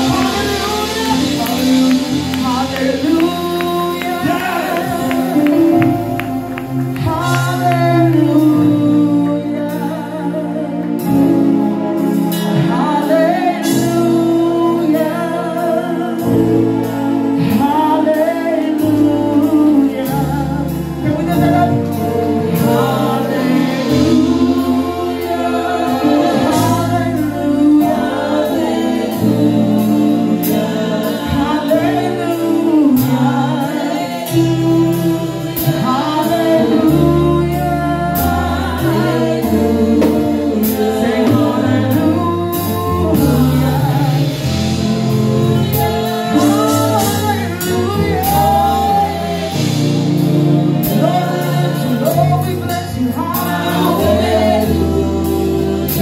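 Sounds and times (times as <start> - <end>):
woman singing into microphone: 0.0 - 11.3
bass notes: 0.0 - 56.0
drum kit: 0.0 - 56.0
keyboard: 0.0 - 56.0.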